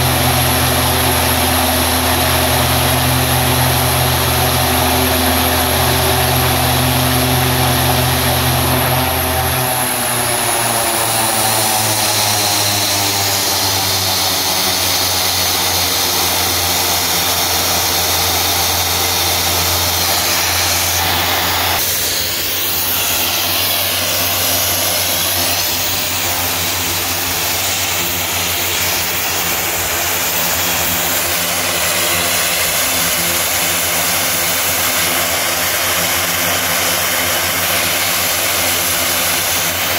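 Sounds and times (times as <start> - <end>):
turboprop engines running: 0.0 - 39.9.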